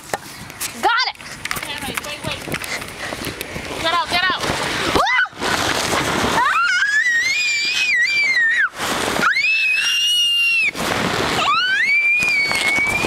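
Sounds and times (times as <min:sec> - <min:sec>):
young child screaming: 0:05.0 - 0:05.4, 0:06.4 - 0:10.8, 0:11.4 - 0:13.0.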